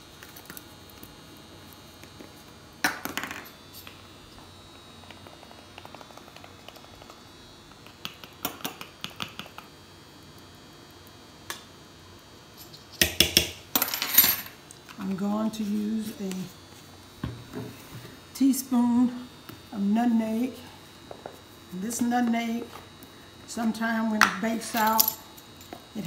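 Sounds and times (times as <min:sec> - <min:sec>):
metal measuring spoons clinking: 0:24.6 - 0:25.2.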